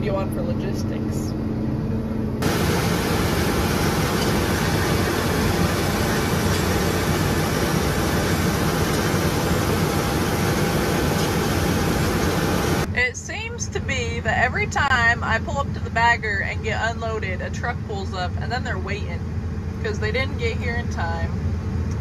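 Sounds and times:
tractor engine drone: 0.0 - 22.0
combine machinery rushing noise: 1.5 - 12.9.

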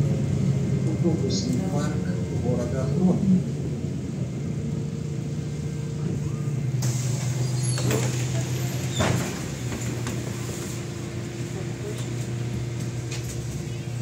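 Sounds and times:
bus diesel engine running: 0.0 - 14.0
hiss: 6.8 - 9.5.

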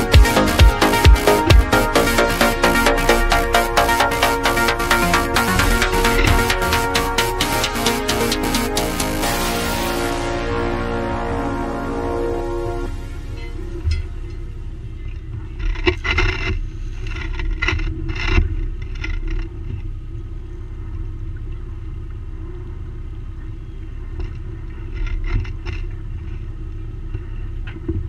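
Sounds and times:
boat engine rumbling: 0.0 - 28.0.

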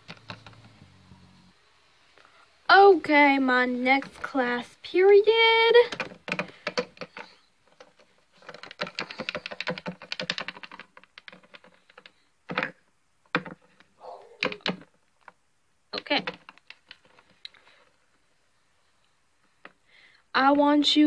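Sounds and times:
plastic figurines clicking: 5.8 - 13.8, 14.4 - 15.4, 16.0 - 17.6.

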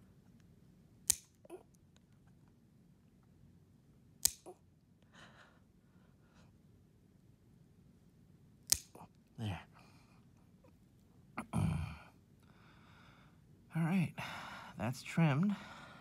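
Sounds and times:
nail clipper snapping: 1.0 - 1.5, 4.2 - 4.6, 8.7 - 9.1.

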